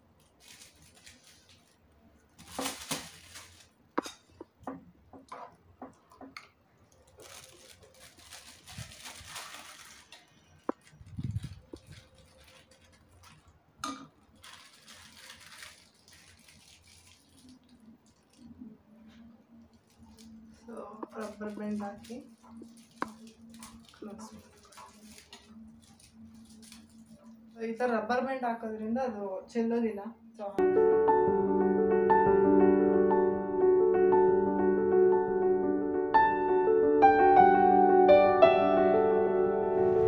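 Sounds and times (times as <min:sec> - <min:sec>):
plastic bags rustling: 0:00.0 - 0:04.5, 0:06.8 - 0:27.8.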